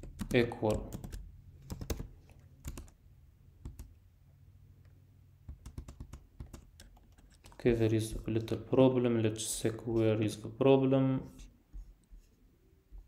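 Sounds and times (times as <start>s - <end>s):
computer keyboard typing: 0.0s - 3.0s, 3.6s - 4.0s, 5.5s - 8.6s.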